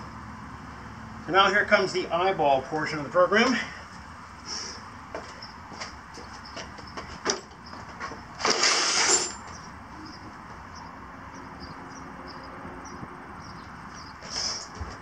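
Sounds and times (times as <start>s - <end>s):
plastic case scraping on concrete: 7.2s - 9.6s.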